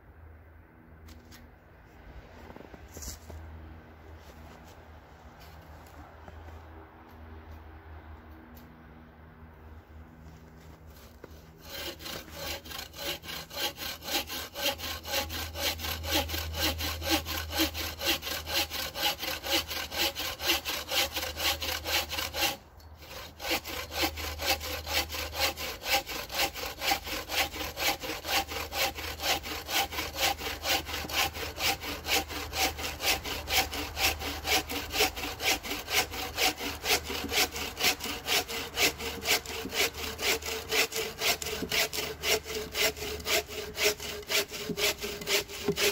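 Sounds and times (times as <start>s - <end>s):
bow saw cutting log: 10.7s - 45.9s.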